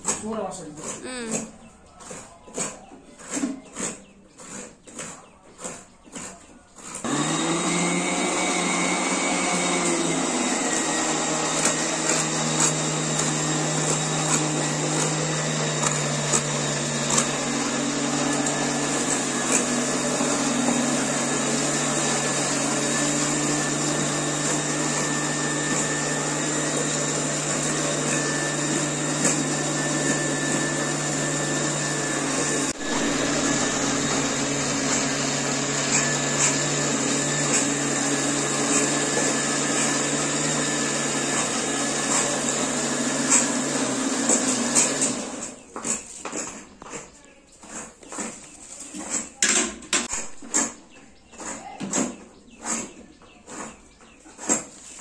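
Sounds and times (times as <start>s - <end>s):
small motor humming: 7.0s - 45.5s.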